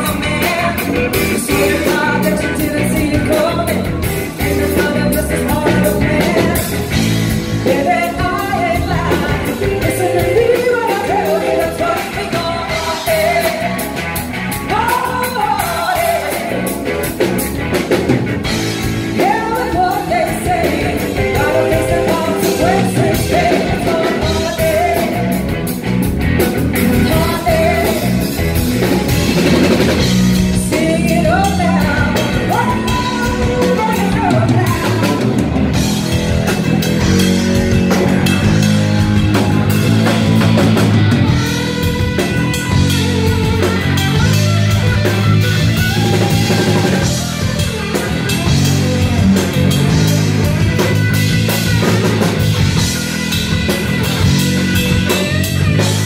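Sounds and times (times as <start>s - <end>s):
woman singing: 0.0s - 16.8s, 19.1s - 25.4s, 26.9s - 28.4s, 30.5s - 35.6s
drum kit: 0.0s - 56.0s
electric bass: 0.0s - 56.0s
electric guitar: 0.0s - 56.0s.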